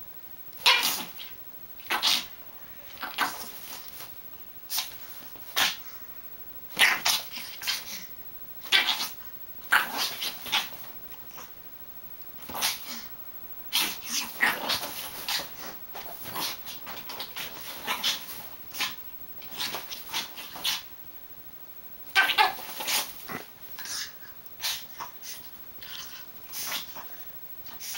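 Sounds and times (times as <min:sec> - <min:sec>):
dog making noisy vocal sounds: 0:00.6 - 0:04.1, 0:04.7 - 0:05.9, 0:06.7 - 0:11.5, 0:12.4 - 0:13.1, 0:13.7 - 0:20.9, 0:22.1 - 0:27.9
dog scuffling against cushions: 0:13.8 - 0:20.8.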